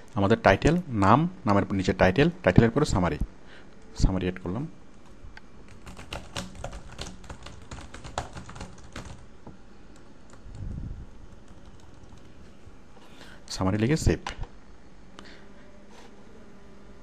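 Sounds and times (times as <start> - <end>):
keyboard typing: 5.0 - 9.2, 11.3 - 12.4.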